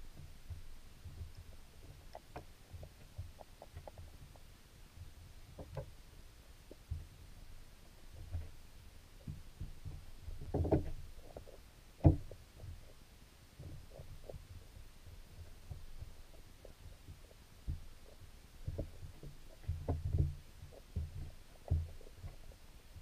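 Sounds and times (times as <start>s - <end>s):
dull underwater knocks: 9.2s - 12.8s.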